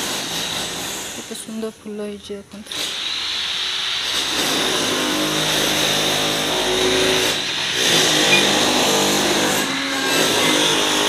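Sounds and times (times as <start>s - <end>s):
construction machinery droning: 4.6s - 11.0s.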